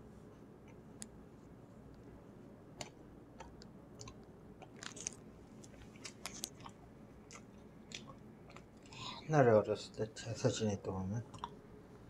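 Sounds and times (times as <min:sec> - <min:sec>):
soft chewing clicks: 0:02.7 - 0:09.1, 0:11.2 - 0:11.6.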